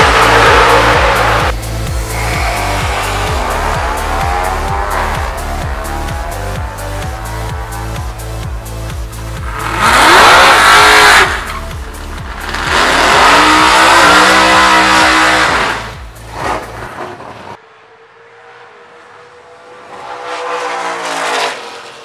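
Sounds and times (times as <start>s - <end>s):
electronic dance music: 0.0s - 16.4s
car engine revving: 0.0s - 22.0s.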